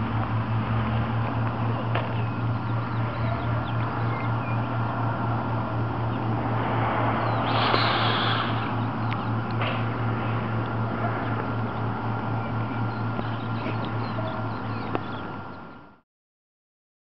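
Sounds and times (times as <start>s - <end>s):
engine throbbing: 0.0s - 16.0s
faint bird chirps: 1.7s - 4.8s, 11.2s - 16.0s
brief hiss: 7.4s - 8.7s.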